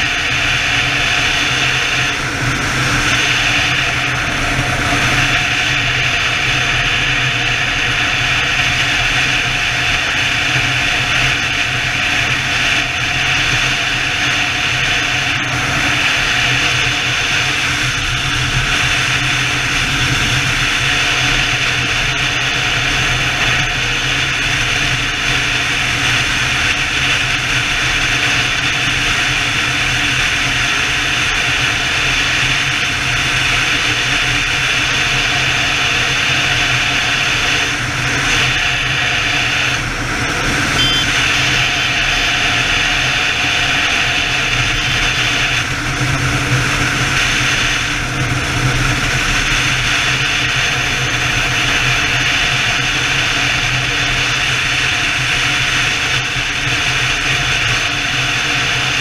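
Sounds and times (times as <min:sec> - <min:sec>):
motorcycle engine cruising: 0:00.0 - 0:59.0
wind rush over microphone: 0:00.0 - 0:59.0.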